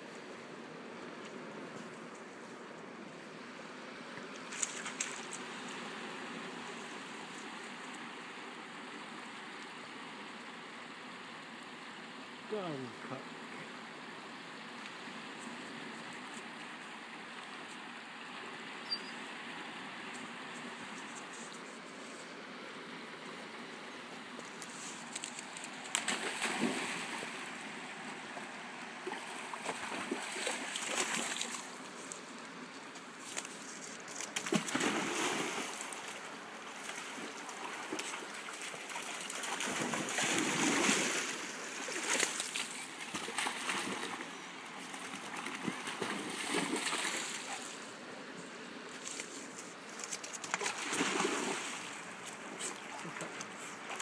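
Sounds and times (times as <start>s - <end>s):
water splashing at shoreline: 24.8s - 31.9s, 34.1s - 47.8s, 50.3s - 54.0s.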